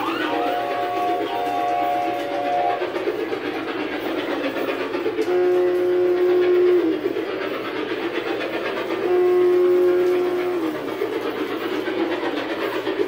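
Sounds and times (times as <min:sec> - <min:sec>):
model train whistle: 0:00.0 - 0:03.0, 0:05.1 - 0:07.4, 0:08.8 - 0:11.3
train running along track: 0:00.0 - 0:13.0.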